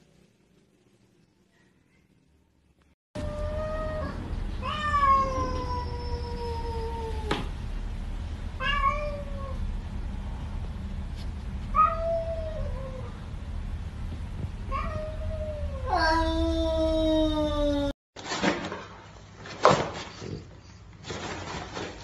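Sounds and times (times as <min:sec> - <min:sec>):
cats yowling: 0:03.2 - 0:07.3, 0:11.7 - 0:13.2.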